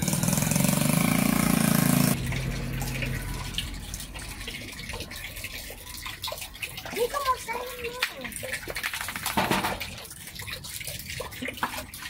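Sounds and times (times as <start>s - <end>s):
loud engine running: 0.0s - 3.4s
water splashing: 0.0s - 12.0s.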